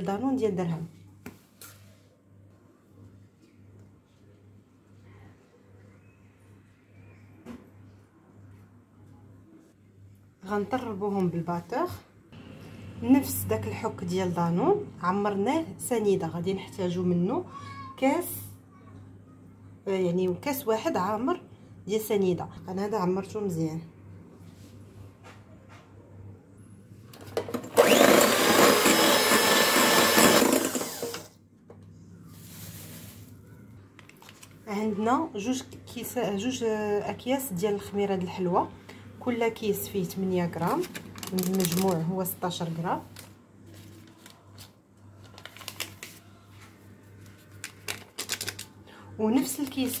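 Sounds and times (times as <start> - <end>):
electric hand mixer whining: 27.7 - 31.3
paper sachet rustling: 34.0 - 34.6, 40.7 - 42.4, 43.0 - 48.8.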